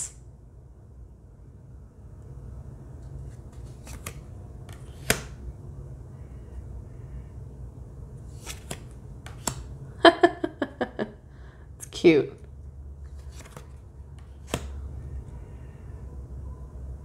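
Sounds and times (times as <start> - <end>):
low steady hum: 0.0 - 17.0
cards clicking and sliding: 3.0 - 5.4, 8.2 - 9.8, 13.0 - 15.0.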